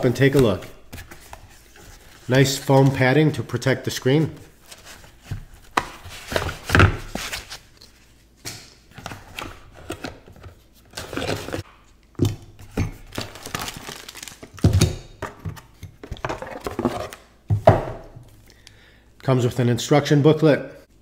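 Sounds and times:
plastic bag rustling: 13.0s - 14.7s
items thunking on a table: 17.5s - 18.2s.

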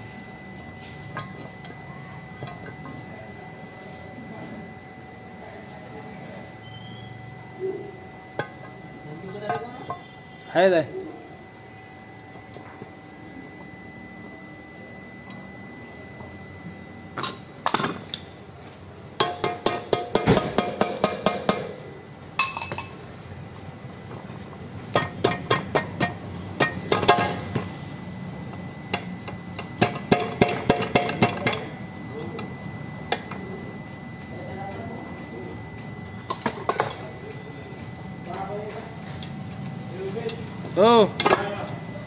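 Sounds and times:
metal parts clicking and clinking: 36.3s - 37.1s.

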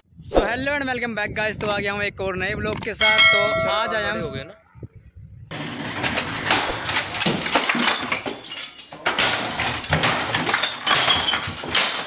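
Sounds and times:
objects crashing and clattering: 5.5s - 12.0s
glassy clinks of bottles: 7.5s - 12.0s.

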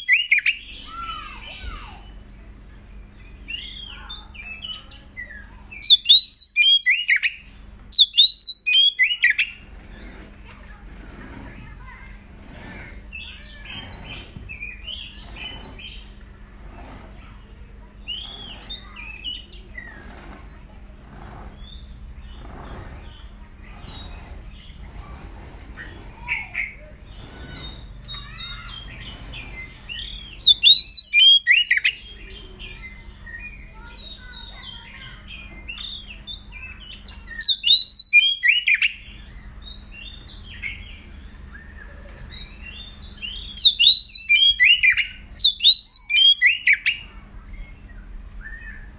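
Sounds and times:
bird singing whistled chirps: 0.0s - 1.2s, 3.1s - 9.6s, 27.5s - 34.5s, 35.7s - 48.9s.

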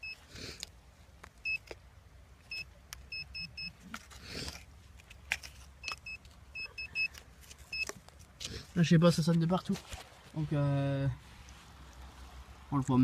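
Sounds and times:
metal detector beeping: 0.0s - 0.2s, 1.4s - 1.7s, 2.5s - 3.8s, 5.8s - 8.0s.

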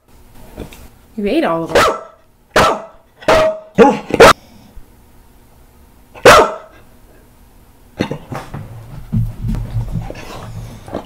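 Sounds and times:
dog barking loudly: 1.7s - 4.4s, 6.2s - 6.8s.

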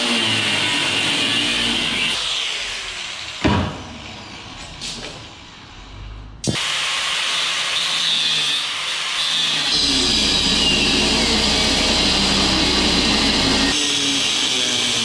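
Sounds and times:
angle grinder whining: 0.0s - 3.4s, 7.4s - 15.0s.

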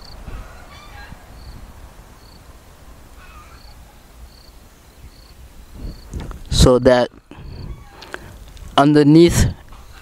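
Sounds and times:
cricket chirping: 0.0s - 0.2s, 1.4s - 1.6s, 2.2s - 2.5s, 3.2s - 6.2s.

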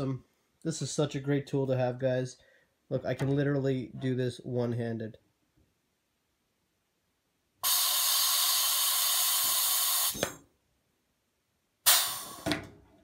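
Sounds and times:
compressed air hissing: 7.6s - 10.4s, 11.9s - 12.5s.

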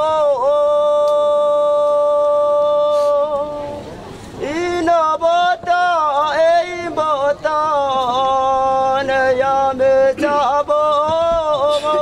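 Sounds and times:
man chanting: 4.4s - 12.0s.

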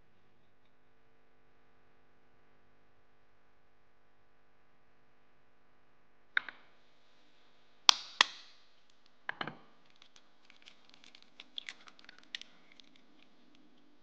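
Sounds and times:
shell crackling and ticking: 7.9s - 9.2s, 9.8s - 14.0s
eggshell cracking: 9.8s - 13.8s.

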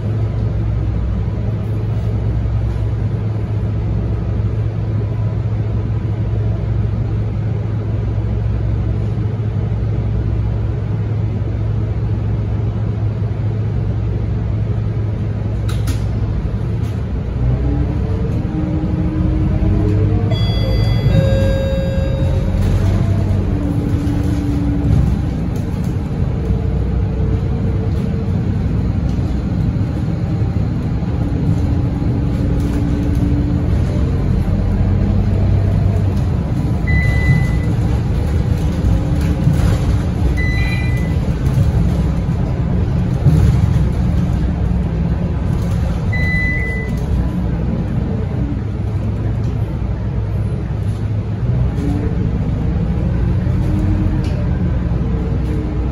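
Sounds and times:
bus engine rumble: 0.0s - 55.9s
high electronic beep: 20.3s - 22.6s.

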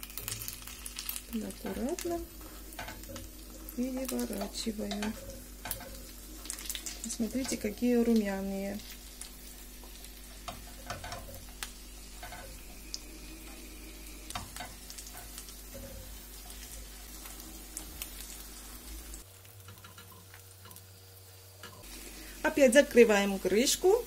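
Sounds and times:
oil sizzling in a frying pan: 0.0s - 24.0s
spatula tapping and scraping pan: 2.4s - 7.8s, 9.8s - 12.8s, 19.7s - 20.8s.

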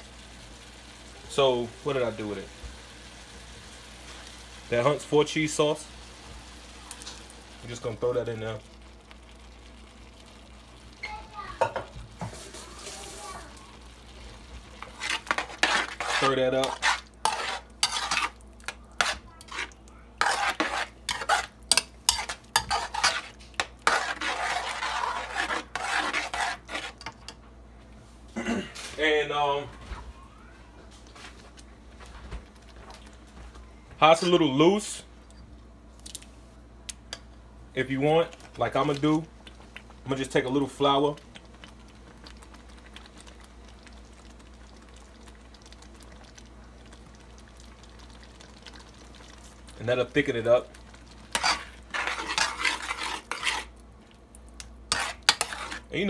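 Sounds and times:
sauce bubbles popping: 8.6s - 11.1s, 38.3s - 55.9s
metal spoon stirring in metal pot: 14.7s - 27.4s, 48.6s - 53.8s, 54.9s - 56.0s.

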